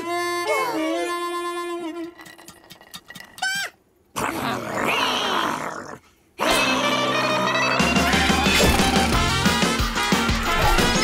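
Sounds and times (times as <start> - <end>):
music: 0.0 - 2.1, 6.4 - 11.0
loud snarling growl: 4.2 - 6.0.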